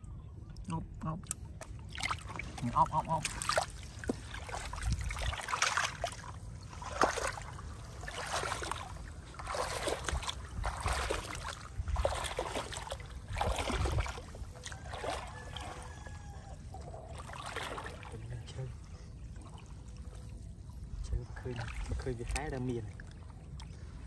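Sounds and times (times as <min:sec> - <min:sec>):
water splashing and sloshing: 0:00.0 - 0:24.0
person wading: 0:01.6 - 0:24.0
basket scooping through water: 0:01.9 - 0:18.2.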